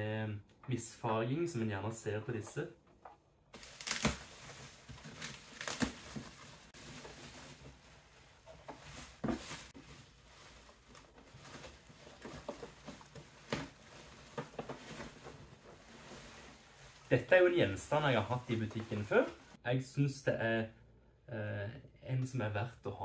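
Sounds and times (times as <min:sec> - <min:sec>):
bubble wrap rustling and crinkling: 0:03.6 - 0:19.6.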